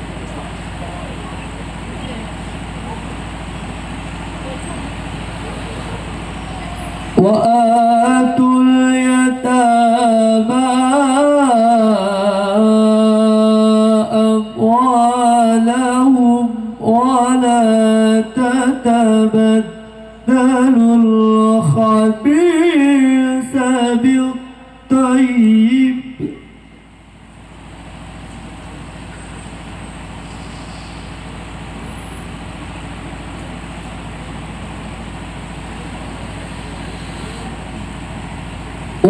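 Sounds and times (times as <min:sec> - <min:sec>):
person reciting melodically: 0:04.4 - 0:26.8.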